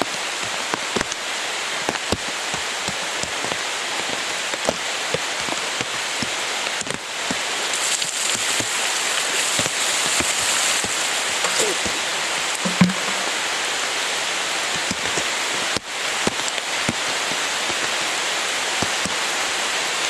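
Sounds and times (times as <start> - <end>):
steady hiss: 0.0 - 20.0
water dripping: 5.4 - 17.0
ice water splashing down: 7.2 - 14.3.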